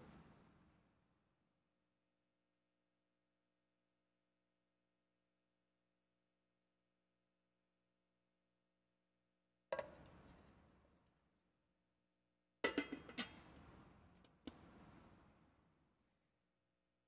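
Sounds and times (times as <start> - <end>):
metal ware clinking and knocking: 12.7 - 13.4.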